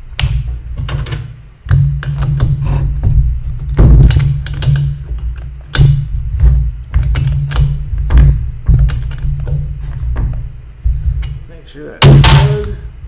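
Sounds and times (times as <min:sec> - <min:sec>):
heavy low thud: 0:03.0 - 0:04.4, 0:05.8 - 0:11.4, 0:12.0 - 0:13.0.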